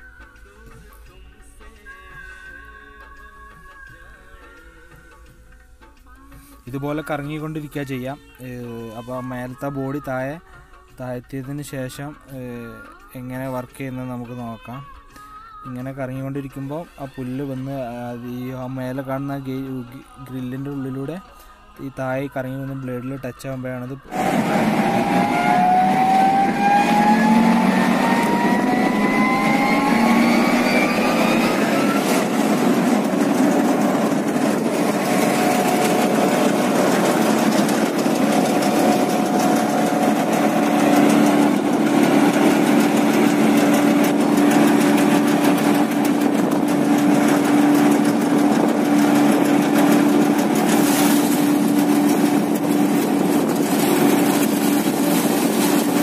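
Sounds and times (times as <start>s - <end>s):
hay grinder machine drone: 24.1s - 56.0s
rising machine whine: 24.1s - 56.0s
steady low hum: 24.1s - 56.0s.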